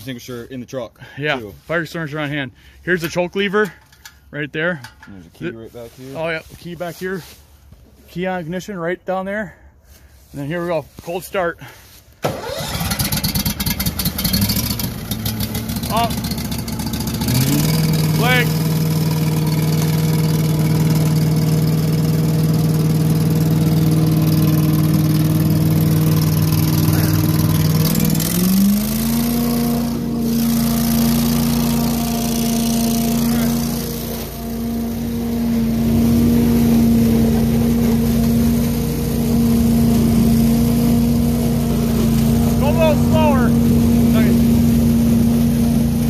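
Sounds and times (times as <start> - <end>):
vacuum loader engine running: 12.2 - 46.0.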